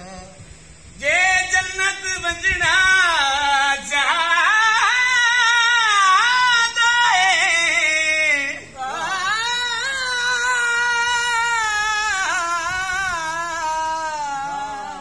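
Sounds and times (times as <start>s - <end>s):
person singing long held notes: 0.0s - 15.0s.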